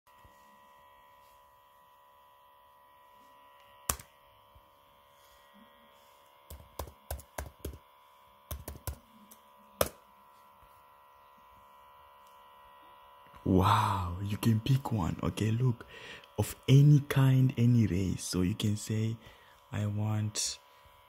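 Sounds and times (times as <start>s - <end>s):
faint electrical hum: 0.1s - 21.0s
laptop keyboard typing: 3.9s - 4.1s, 6.4s - 7.8s, 8.5s - 10.0s.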